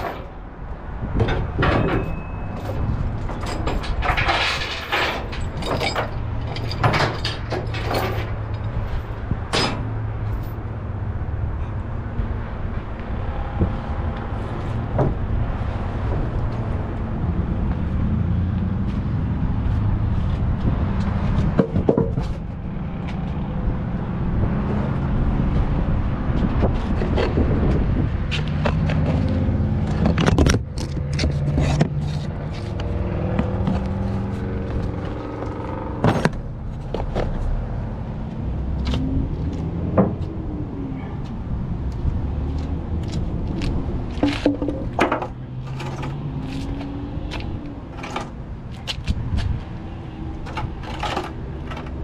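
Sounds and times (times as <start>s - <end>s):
wooden blocks knocking and scraping: 21.4s - 22.4s, 44.1s - 46.7s.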